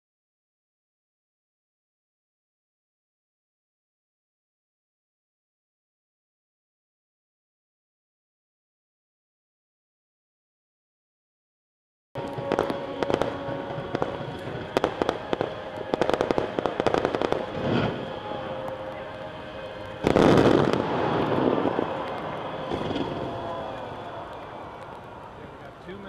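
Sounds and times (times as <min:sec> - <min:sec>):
fireworks exploding: 0:12.2 - 0:25.9.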